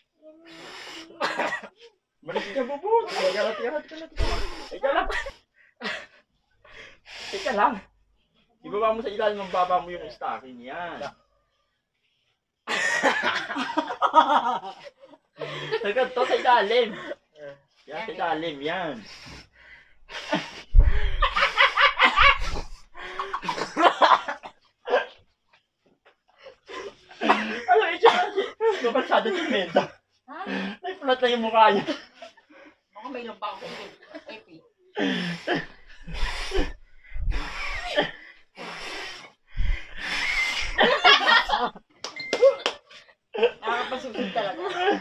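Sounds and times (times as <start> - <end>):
group laughing loudly: 4.7 - 5.3, 12.7 - 17.2, 20.8 - 25.1, 26.7 - 29.9, 40.5 - 45.0
breath rumbling on microphone: 19.1 - 23.4, 35.4 - 40.9
short low thuds: 20.7 - 21.4
person blowing hard: 35.6 - 40.8.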